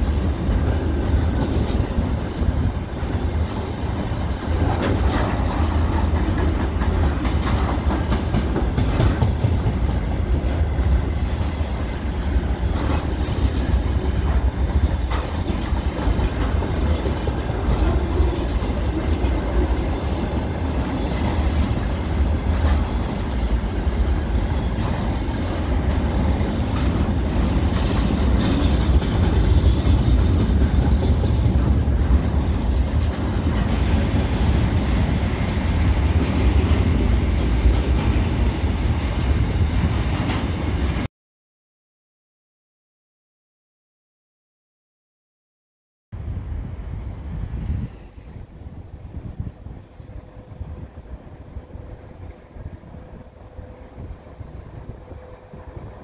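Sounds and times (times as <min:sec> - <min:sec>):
wheels clacking over rail joints: 0:00.0 - 0:38.7
freight train rumbling past: 0:00.0 - 0:41.1, 0:46.2 - 0:56.0.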